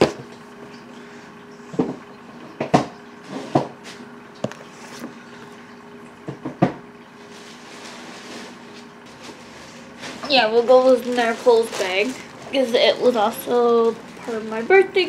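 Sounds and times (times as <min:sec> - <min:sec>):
faint steady hum: 0:00.0 - 0:15.0
bags rustling and knocking: 0:09.1 - 0:12.7.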